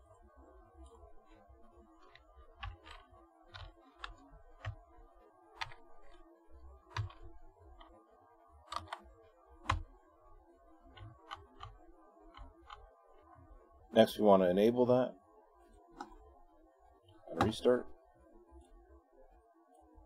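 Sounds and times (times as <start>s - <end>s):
keyboard keystrokes: 2.1s - 4.8s, 6.9s - 7.2s, 8.7s - 9.0s, 9.7s - 9.9s.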